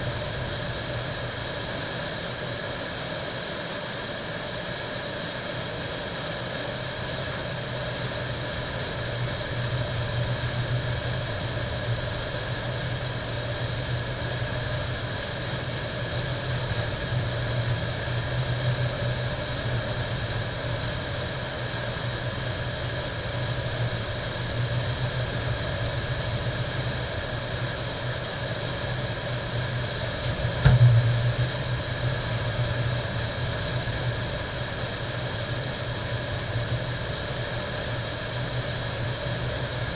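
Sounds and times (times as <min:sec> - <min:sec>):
sharp knock: 0:30.6 - 0:31.2.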